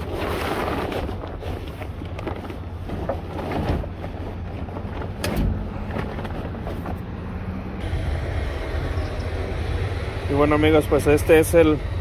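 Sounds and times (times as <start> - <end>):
fabric rustling and crinkling: 0.0 - 7.1.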